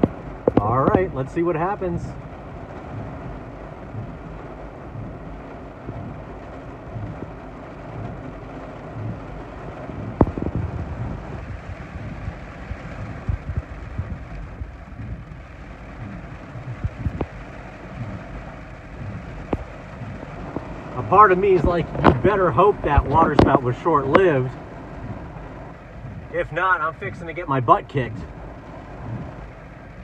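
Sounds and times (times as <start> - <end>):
heavy rain: 0.0 - 30.0
wind rumbling on microphone: 0.0 - 30.0.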